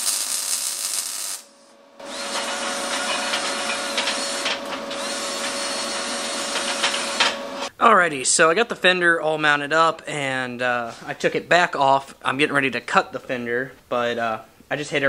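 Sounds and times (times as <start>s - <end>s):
wire wheel hissing on metal: 0.0s - 7.6s
welding arc crackle: 0.0s - 7.7s
drill motor whine: 2.0s - 7.6s.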